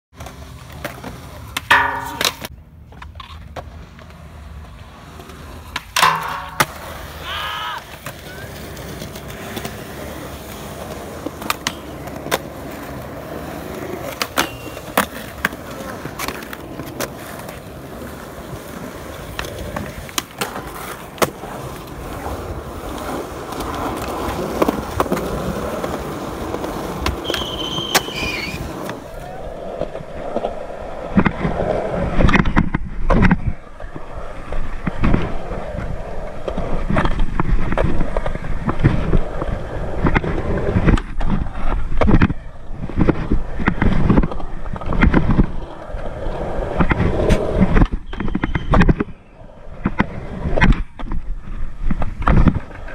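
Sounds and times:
skateboard wheels rolling on concrete: 0.1s - 52.9s
skateboard pops and clacks: 0.2s - 4.2s, 5.2s - 7.2s, 7.8s - 34.0s, 34.8s - 52.9s
skateboard hitting metal handrail: 1.6s - 2.5s, 5.8s - 7.3s.

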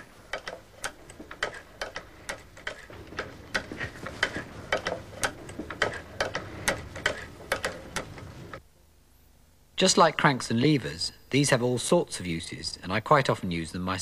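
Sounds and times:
low mechanical rumble: 0.0s - 8.6s
sewing machine clicking: 0.0s - 8.6s.

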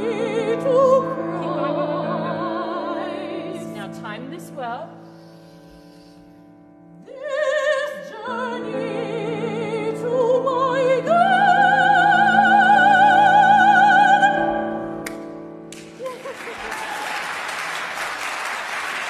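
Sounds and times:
woman singing opera: 0.0s - 4.9s, 7.0s - 15.0s.

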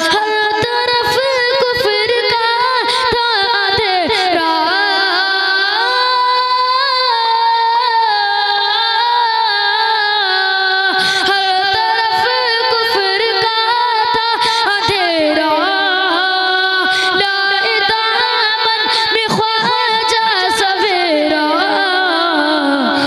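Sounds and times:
boy singing into a microphone: 0.0s - 23.0s.

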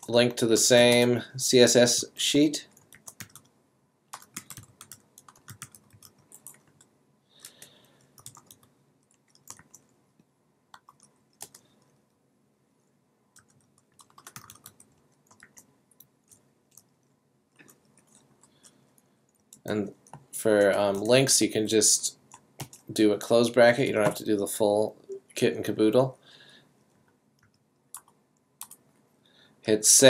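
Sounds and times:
computer keyboard typing: 2.7s - 3.5s, 4.1s - 9.9s, 10.7s - 11.7s, 13.4s - 16.9s, 17.6s - 20.3s, 22.3s - 22.9s, 27.4s - 28.8s.

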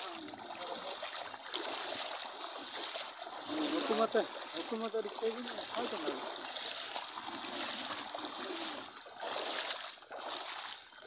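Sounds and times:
floodwater sloshing and splashing: 0.0s - 11.0s.

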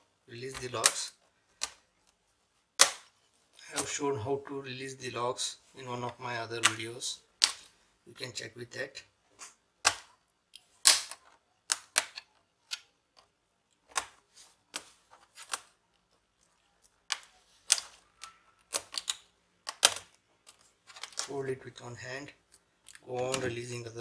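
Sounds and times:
plastic latches clicking and snapping: 17.1s - 21.3s.

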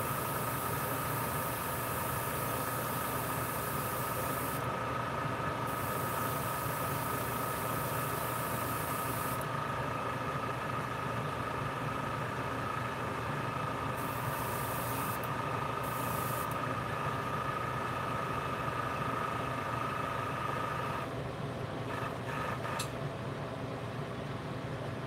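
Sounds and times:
motor humming with whine: 0.0s - 21.2s
airbrush spraying hiss: 5.7s - 9.4s, 14.0s - 16.6s
sharp click: 22.8s - 23.0s.

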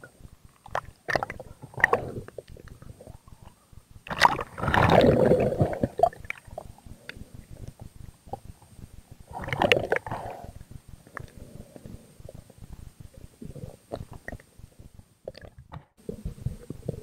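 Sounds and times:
water splashing and gurgling: 0.6s - 3.2s, 4.1s - 6.7s, 9.3s - 10.5s
loud bubbling rush: 4.1s - 6.4s
faint clicks: 6.2s - 8.7s, 10.6s - 13.3s.

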